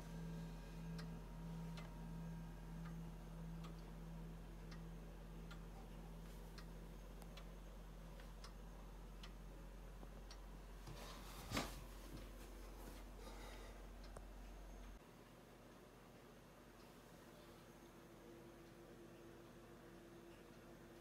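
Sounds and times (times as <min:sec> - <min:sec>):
grandfather clock ticking: 0:00.1 - 0:10.8.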